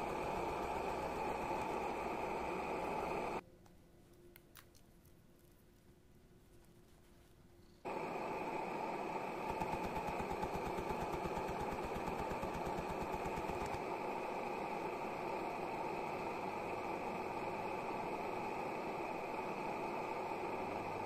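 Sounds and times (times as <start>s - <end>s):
engine fast rhythmic buzz: 0.0s - 3.4s, 7.8s - 21.0s.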